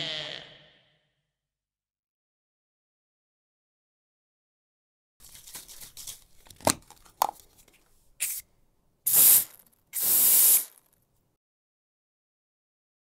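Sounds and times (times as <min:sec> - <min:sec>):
spray can clicks: 0:08.2 - 0:08.4, 0:09.1 - 0:10.9
spray can hissing: 0:08.2 - 0:08.5, 0:09.1 - 0:10.9.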